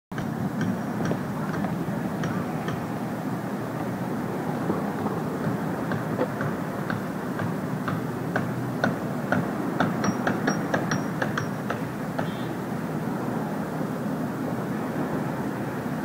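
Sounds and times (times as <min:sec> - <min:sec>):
heavy engines rumbling: 0:00.1 - 0:16.0
street traffic: 0:00.1 - 0:16.0.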